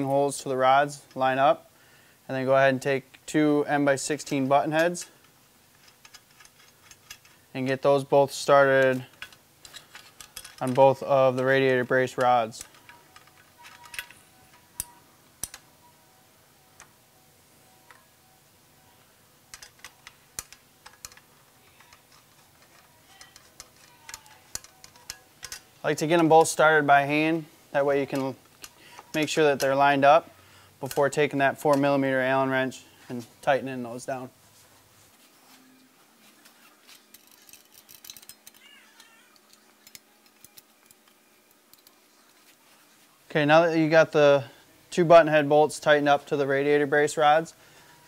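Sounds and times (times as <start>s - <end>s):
small metallic bolt clicks: 4.2s - 7.4s, 8.7s - 15.7s, 19.5s - 26.6s, 37.0s - 42.0s.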